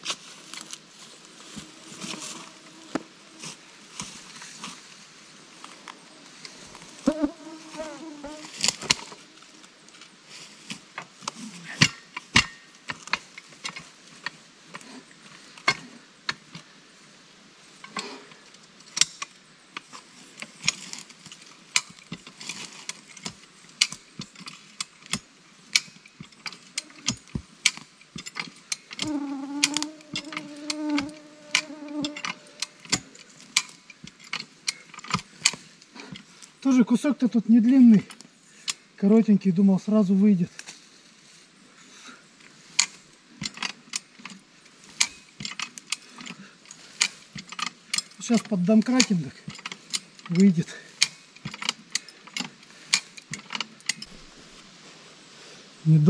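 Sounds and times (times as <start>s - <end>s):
metal chain clicks and knocks: 20.5s - 36.3s, 42.8s - 44.4s, 45.0s - 54.2s.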